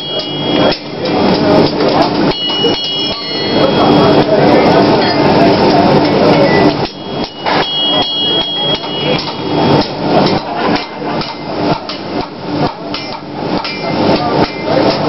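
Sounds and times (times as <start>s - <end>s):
hammers striking iron on anvils: 6.7s - 15.0s.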